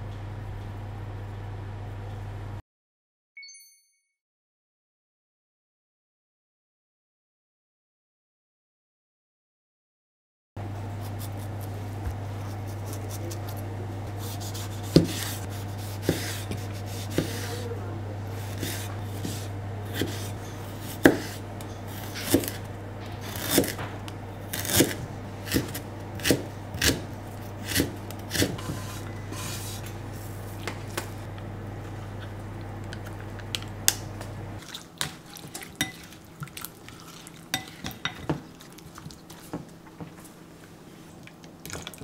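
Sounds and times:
steady low hum: 0.0 - 2.6, 10.6 - 41.7
knife chopping on wooden board: 14.2 - 17.6, 18.4 - 29.8.

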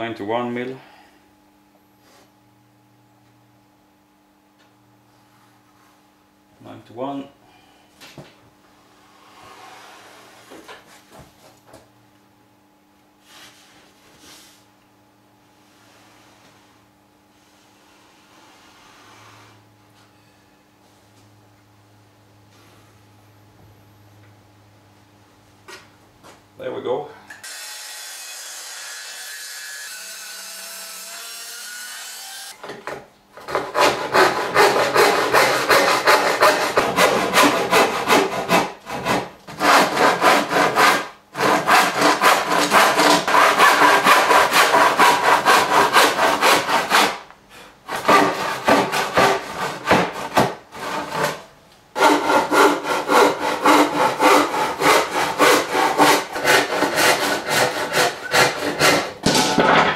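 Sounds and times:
hand saw cutting wood: 27.4 - 32.6, 33.4 - 59.4.

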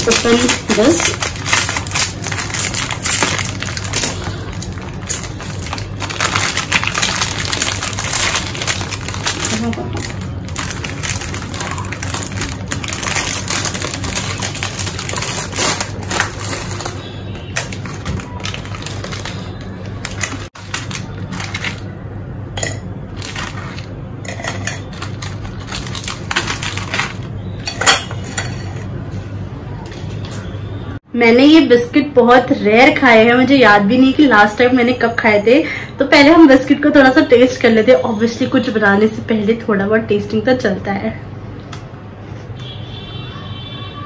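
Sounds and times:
foil wrapper crinkling: 0.0 - 22.0, 23.1 - 27.4.

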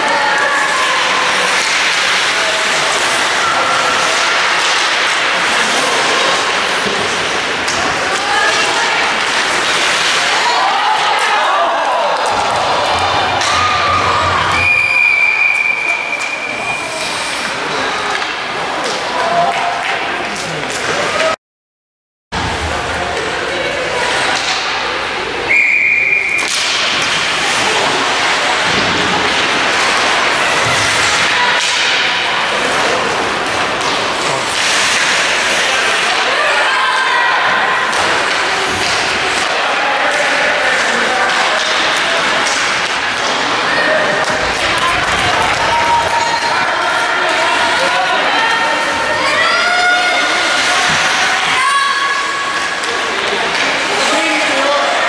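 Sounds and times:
ice hockey arena din: 0.0 - 21.4, 22.4 - 55.0
referee's whistle: 14.6 - 16.9, 25.5 - 26.5.

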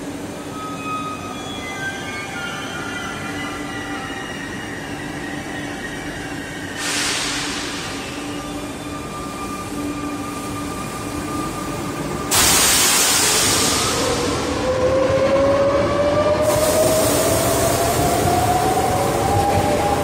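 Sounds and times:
loud hiss: 6.8 - 8.3, 12.3 - 14.2.

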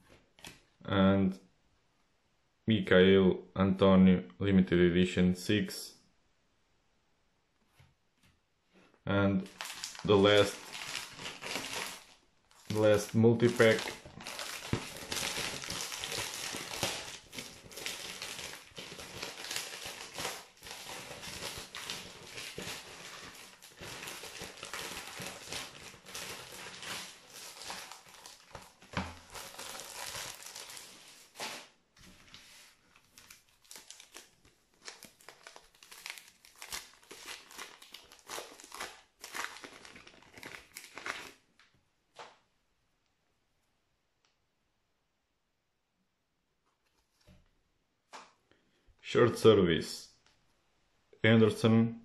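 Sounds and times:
plastic wrapping crinkling and tearing: 9.4 - 41.7.

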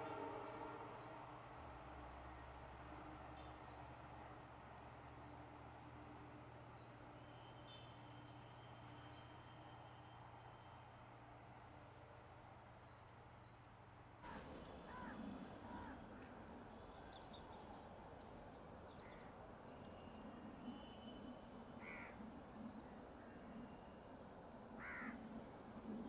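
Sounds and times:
crows cawing faintly: 14.2 - 16.4, 21.8 - 22.3, 24.8 - 25.4.

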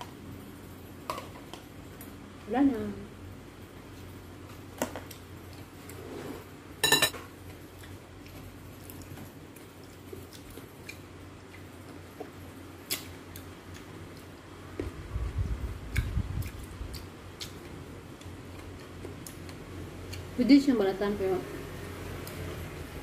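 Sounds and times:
spoon clinking on ceramic bowl: 6.8 - 7.2.

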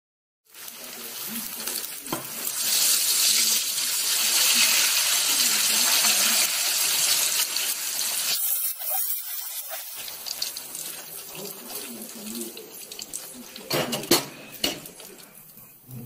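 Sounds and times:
pepper sizzling in hot oil: 0.5 - 15.8.

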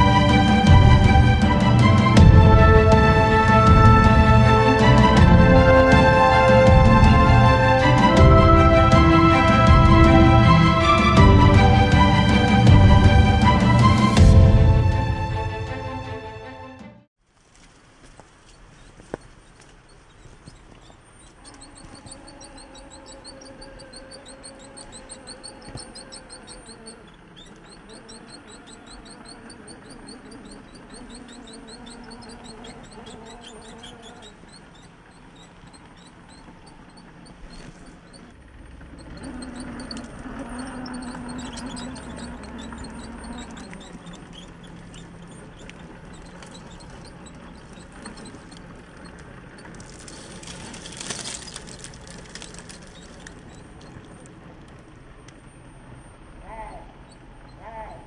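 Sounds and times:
rc car motor whining: 20.5 - 54.8.

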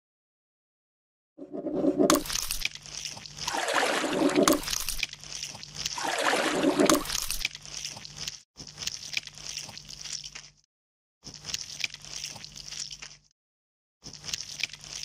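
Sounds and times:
wet squelching: 1.7 - 13.3.

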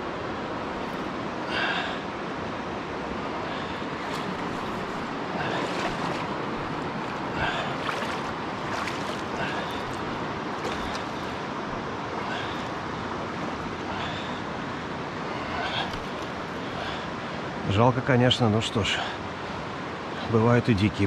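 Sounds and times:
river water rushing: 0.0 - 20.4
small water splashes: 3.6 - 14.3.

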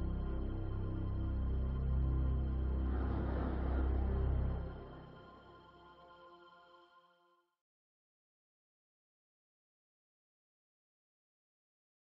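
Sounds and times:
music with low drone: 0.0 - 7.1.

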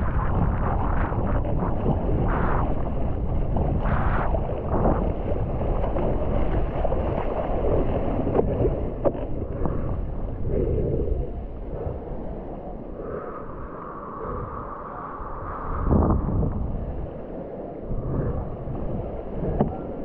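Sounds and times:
water splashing: 0.0 - 13.7
wind buffeting microphone: 0.0 - 20.0.

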